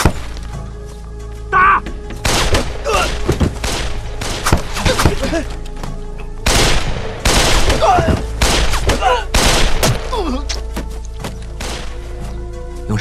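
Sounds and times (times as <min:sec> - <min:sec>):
dramatic music score: 0:00.0 - 0:13.0
rifle gunfire: 0:06.5 - 0:07.8, 0:08.4 - 0:10.0.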